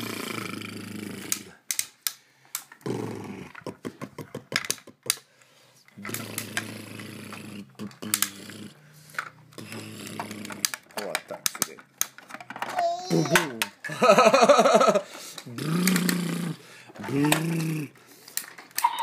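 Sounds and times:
plastic toy parts clattering: 4.4 - 5.2, 9.1 - 13.9, 16.9 - 19.0.

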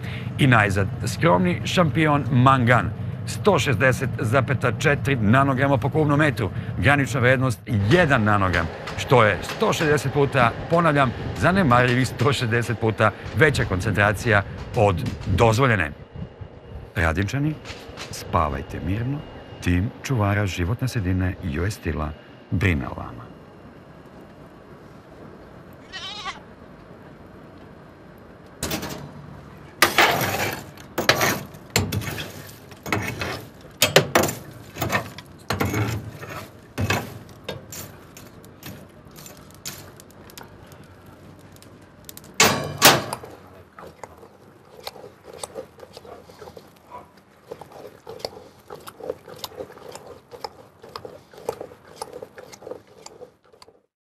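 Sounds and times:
coal fire crackling and popping: 29.8 - 49.3.

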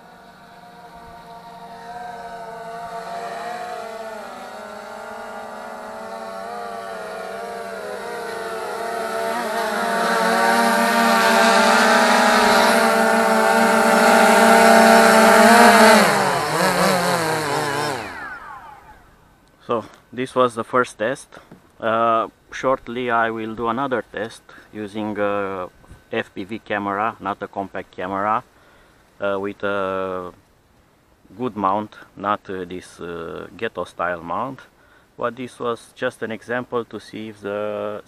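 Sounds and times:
drone propellers whining: 0.0 - 19.2
propellers spinning down: 0.0 - 19.2.

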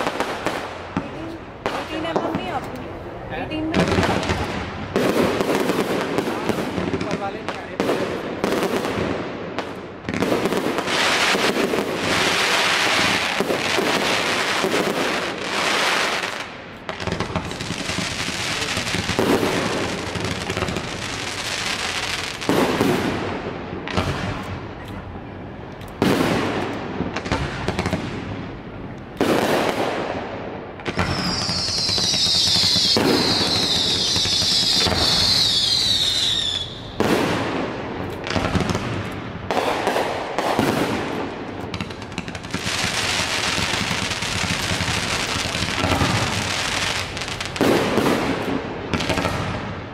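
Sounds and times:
firework hiss and crackle: 0.0 - 25.1, 25.7 - 49.9
high falling firework whistles: 30.9 - 37.4.

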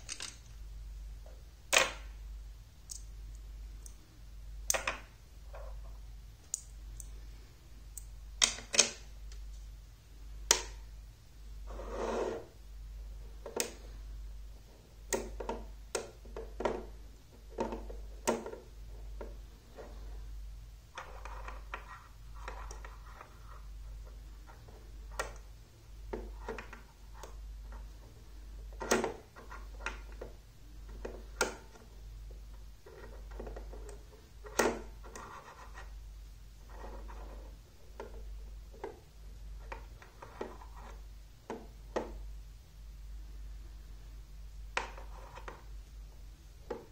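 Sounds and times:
magnetic pieces clicking together: 0.0 - 0.6, 2.8 - 4.0.

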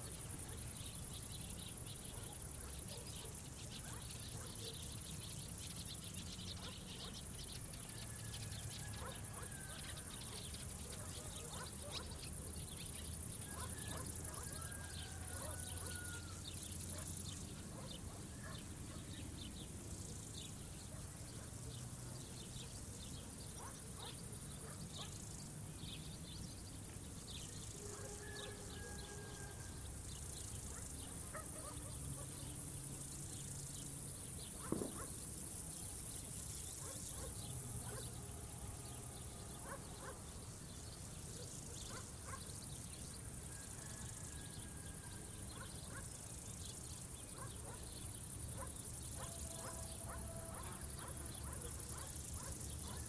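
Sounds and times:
insects buzzing: 0.0 - 53.0
high-pitched insect song: 19.2 - 53.0.

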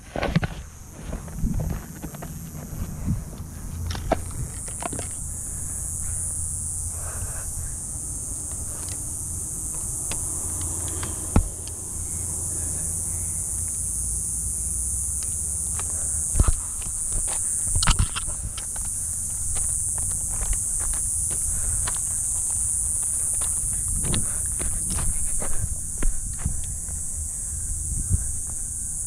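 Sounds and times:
footsteps crunching on gravel: 0.0 - 6.2, 15.8 - 27.1
insects buzzing: 0.0 - 29.0
wind rumble on microphone: 0.6 - 13.5, 23.2 - 29.0.

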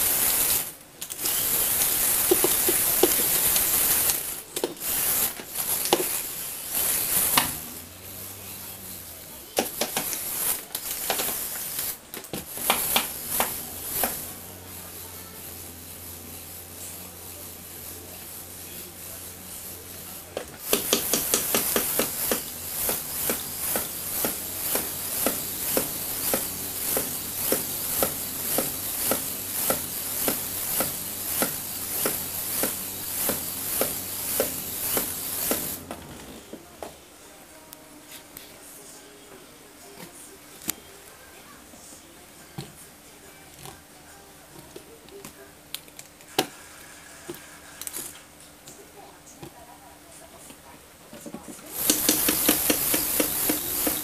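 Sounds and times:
toy tyres scrubbing wooden floor: 0.0 - 36.6, 51.6 - 54.0.

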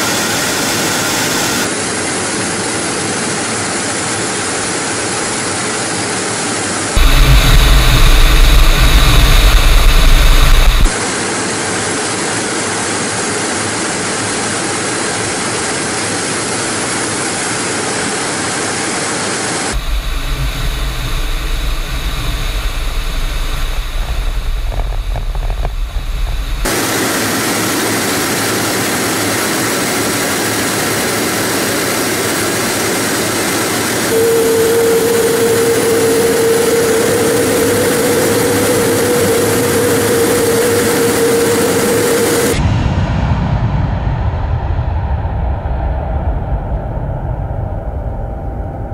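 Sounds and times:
jet and airflow noise: 0.0 - 48.9
deep rumble: 7.0 - 11.0, 19.7 - 26.7, 34.1 - 48.9
steady mid-pitched tone: 7.0 - 11.0, 19.7 - 27.2, 34.0 - 42.7.

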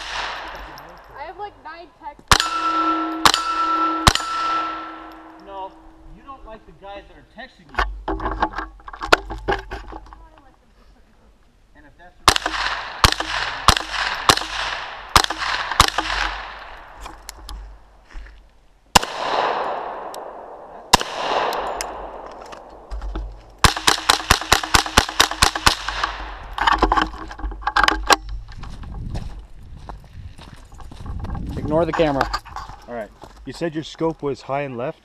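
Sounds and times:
gunshot echoes ringing: 0.0 - 0.8, 2.3 - 6.0, 12.3 - 17.0, 19.0 - 22.9
rifle shots: 0.0 - 0.8, 2.3 - 5.4, 12.2 - 17.0, 18.9 - 22.9, 23.6 - 26.8.

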